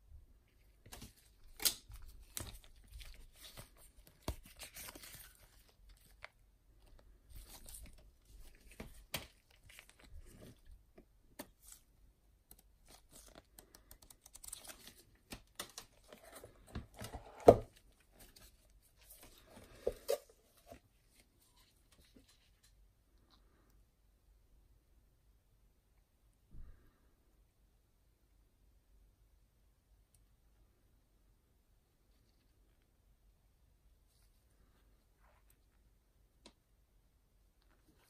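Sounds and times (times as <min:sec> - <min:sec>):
paper and card rustling: 0:00.6 - 0:11.9, 0:12.5 - 0:22.8.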